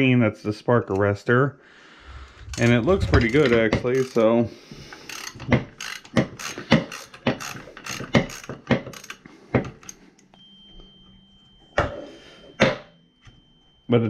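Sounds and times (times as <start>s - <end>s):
socket ratchet clicking: 4.9s - 10.0s.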